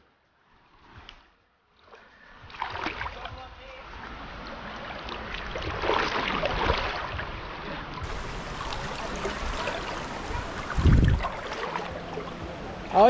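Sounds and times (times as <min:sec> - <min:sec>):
river water rushing: 0:08.0 - 0:13.0.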